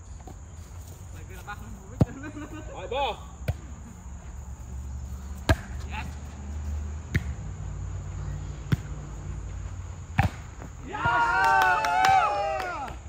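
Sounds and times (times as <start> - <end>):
volleyball being hit: 5.4 - 5.8, 10.2 - 11.2.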